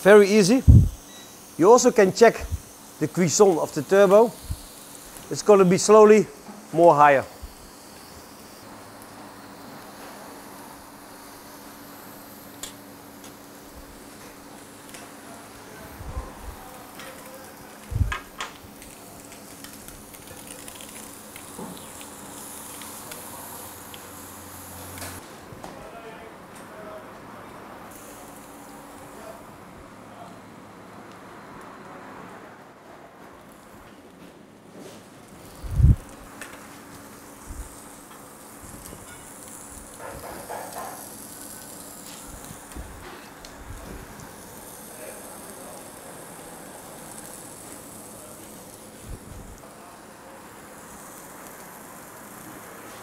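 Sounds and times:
fish sizzling in frying pan: 16.7s - 25.2s, 35.5s - 43.4s, 50.0s - 53.0s.

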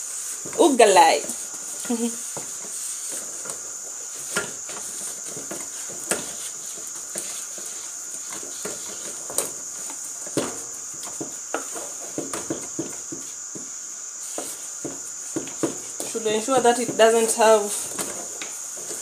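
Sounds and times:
wooden spoon scraping metal pot: 0.0s - 13.3s
steady high hiss: 0.0s - 19.0s.

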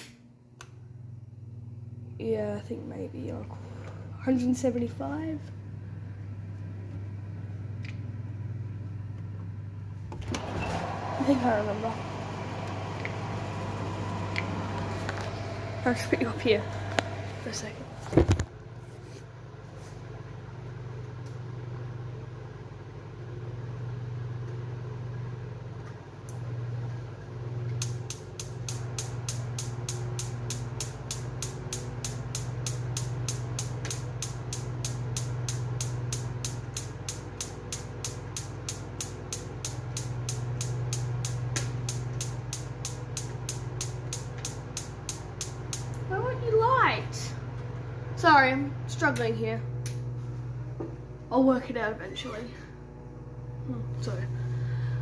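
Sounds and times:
oven spark igniter clicking: 0.0s - 0.8s, 27.6s - 46.1s, 49.0s - 50.1s
low hum: 0.0s - 55.0s.

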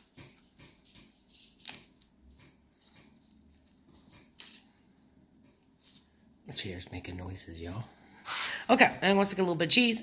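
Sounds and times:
salad greens being torn: 0.4s - 4.8s.

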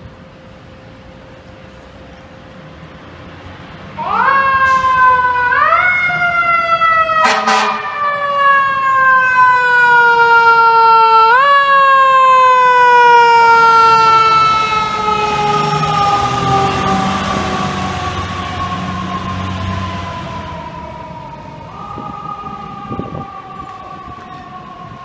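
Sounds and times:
fire truck siren wailing: 0.0s - 25.0s
truck engine rumbling: 0.0s - 25.0s
short loud horn blast: 7.2s - 7.9s.

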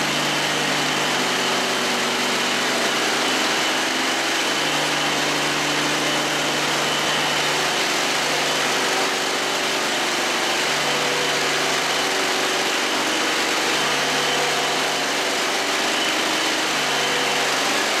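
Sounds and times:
concrete floor grinder running: 0.0s - 18.0s.

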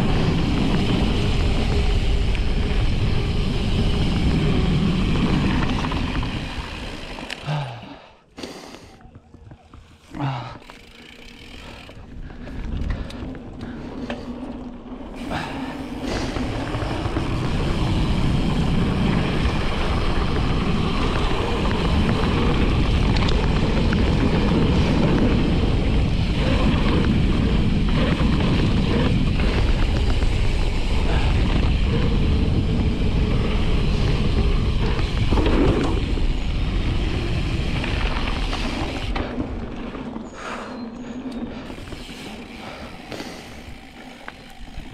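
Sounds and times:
wind rushing over microphone: 0.0s - 7.2s, 11.9s - 44.9s
bike chain and frame rattling: 0.0s - 8.1s, 9.1s - 44.9s
knobby tyres rolling on dirt: 0.0s - 44.9s.

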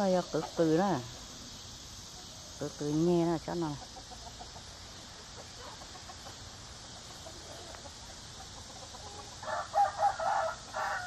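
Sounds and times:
faint steady hiss: 0.0s - 11.0s
chicken clucking loudly: 3.6s - 11.0s.

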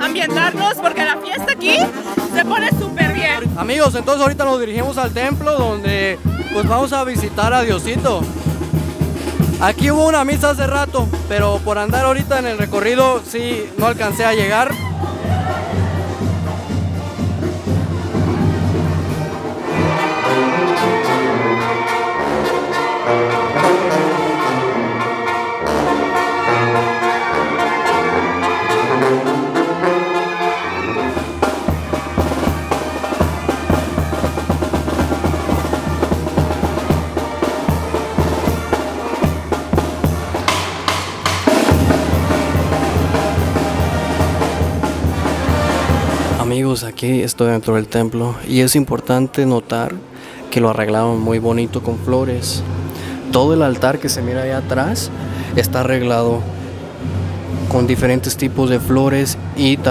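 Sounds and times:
trumpets and trombones: 0.0s - 46.6s
bass drum beating: 1.7s - 19.2s, 31.3s - 46.5s.

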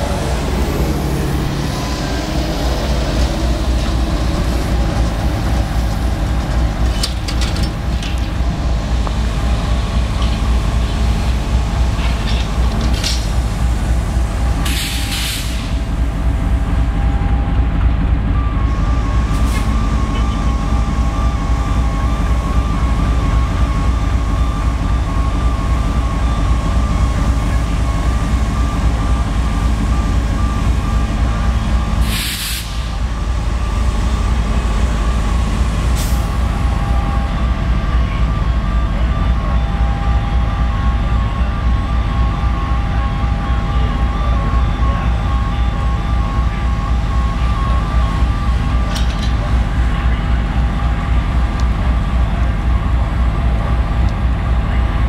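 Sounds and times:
trolley bus driving by: 0.0s - 55.0s
air hiss: 14.6s - 15.8s, 32.0s - 32.9s.

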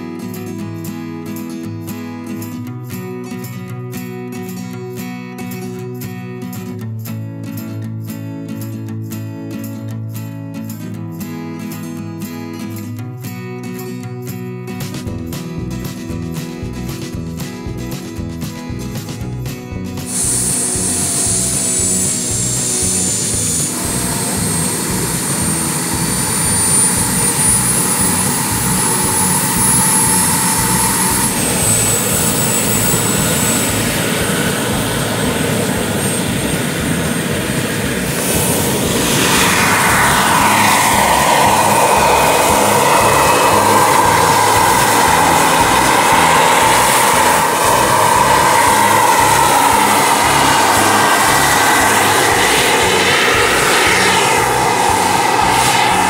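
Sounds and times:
helicopter rotor noise: 15.2s - 56.0s
model helicopter turbine whine: 20.0s - 56.0s.

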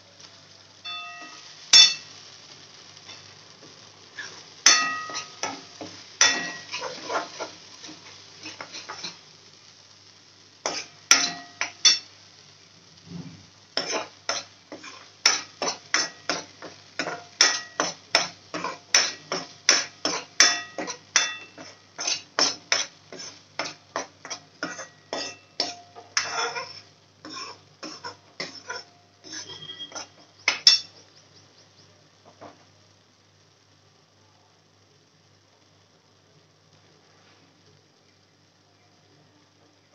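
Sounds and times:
steel spoon scraping metal pan: 1.1s - 2.1s, 4.2s - 9.2s, 10.7s - 12.1s, 13.8s - 30.9s.

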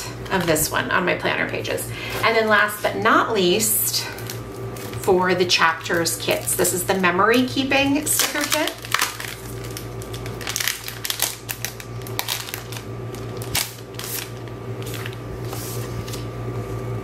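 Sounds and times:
packaging rustling: 4.1s - 5.2s, 7.9s - 16.4s.

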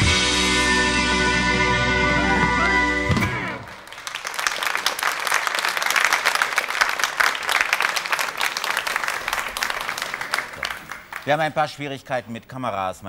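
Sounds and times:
audience applauding: 1.6s - 11.9s.

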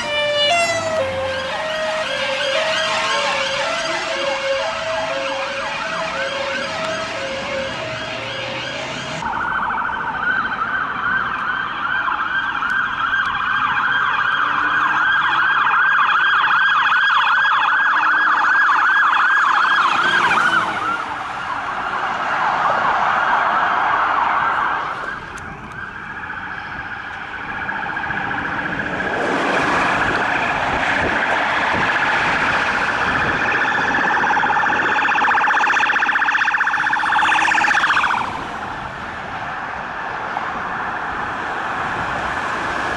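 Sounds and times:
police siren yelping: 0.0s - 38.8s
police siren wailing: 0.0s - 42.9s.

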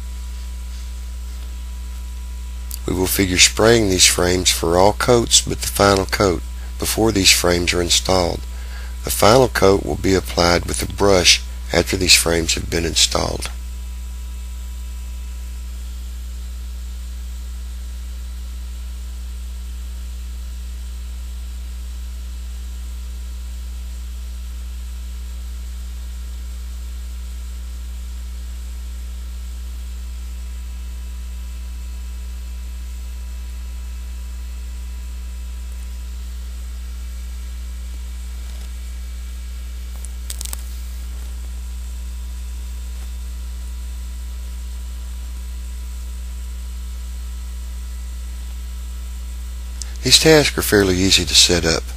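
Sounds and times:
electrical mains hum: 0.0s - 51.9s.

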